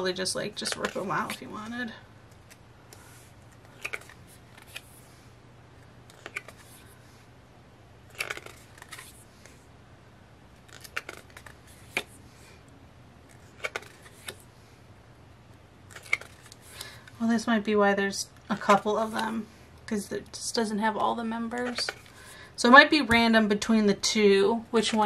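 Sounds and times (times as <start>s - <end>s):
cardstock cards snapping and rustling: 3.5s - 5.0s, 6.1s - 6.8s, 8.1s - 9.6s, 10.6s - 12.2s, 13.3s - 14.4s, 15.9s - 17.0s, 21.6s - 22.2s.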